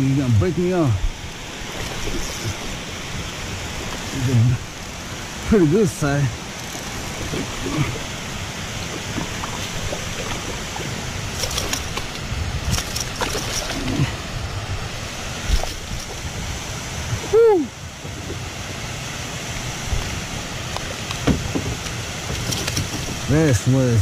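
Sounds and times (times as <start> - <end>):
flowing water: 0.0 - 24.0
fish splashing at the surface: 6.8 - 14.3
fish slapping on rock: 8.8 - 14.0, 21.1 - 23.2.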